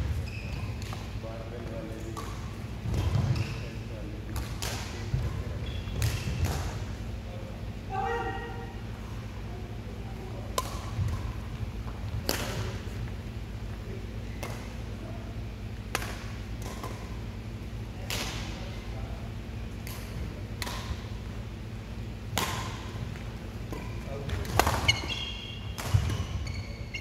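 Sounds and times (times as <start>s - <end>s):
racket striking shuttlecock: 10.5s - 11.3s, 12.2s - 12.9s, 15.9s - 17.2s, 19.8s - 21.1s, 22.3s - 26.3s.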